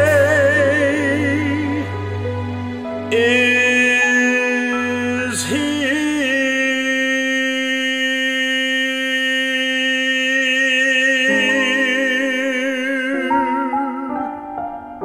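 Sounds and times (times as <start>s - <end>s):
soft backing chords: 0.0s - 8.9s
man singing long note: 3.1s - 14.4s.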